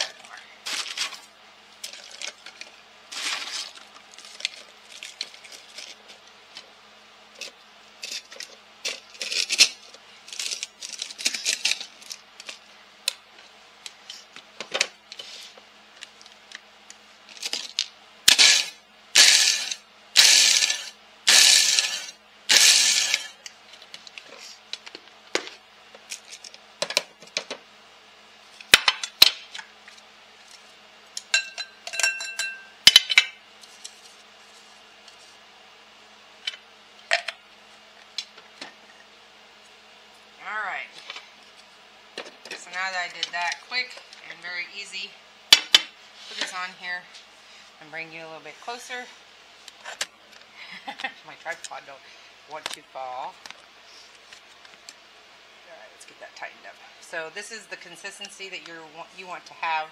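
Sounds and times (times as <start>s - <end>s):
pork rinds rustling and rattling: 1.8s - 6.2s, 7.4s - 12.6s
food processor pulsing: 18.3s - 23.4s.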